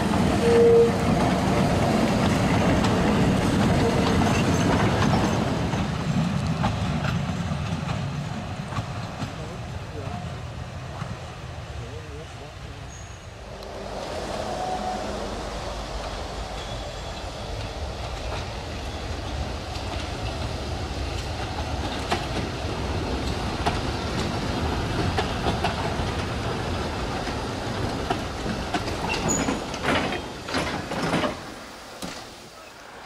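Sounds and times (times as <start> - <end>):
train wheels clicking over rail joints: 1.0 - 10.2, 17.1 - 32.4.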